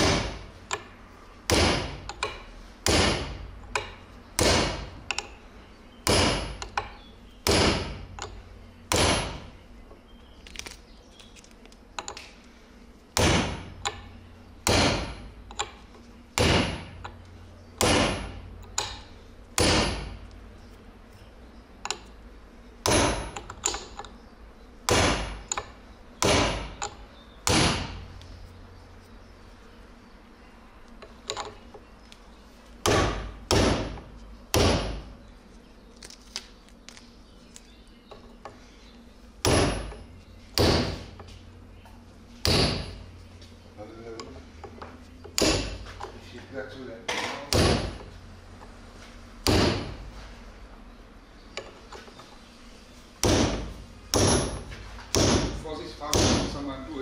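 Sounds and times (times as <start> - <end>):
hammer striking steel chisel: 1.5 - 5.4, 6.0 - 9.5, 13.2 - 15.8, 17.8 - 20.2, 22.8 - 24.0, 45.3 - 45.9, 47.3 - 48.1, 53.2 - 56.6.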